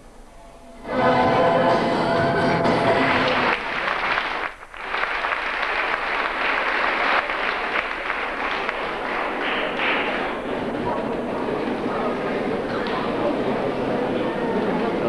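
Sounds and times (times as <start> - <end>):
music: 0.0 - 3.9
audience applauding: 2.6 - 13.4.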